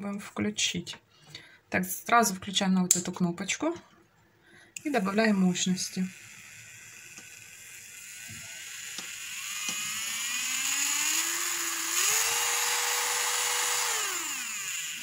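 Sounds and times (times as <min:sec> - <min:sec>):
nail drill motor whine: 0:04.8 - 0:15.0.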